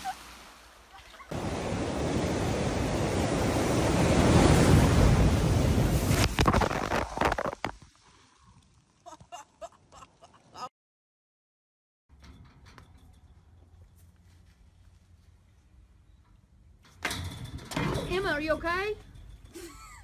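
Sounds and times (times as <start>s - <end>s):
sea waves crashing on rocks: 0.0s - 7.1s
water spray splashes: 0.0s - 7.1s.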